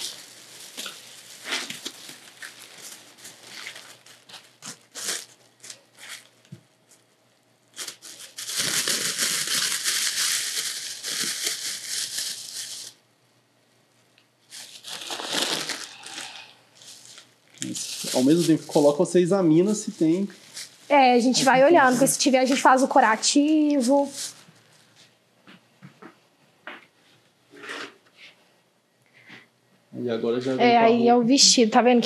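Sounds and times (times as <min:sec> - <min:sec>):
plastic sleeve crinkling and rustling: 0:00.0 - 0:07.0, 0:07.7 - 0:13.0, 0:14.5 - 0:25.0.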